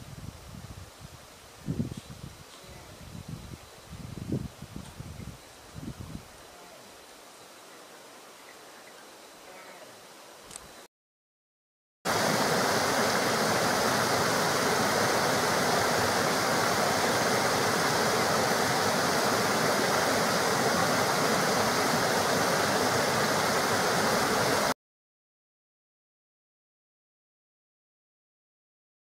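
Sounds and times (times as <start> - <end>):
small waterfall rushing: 12.1 - 24.8.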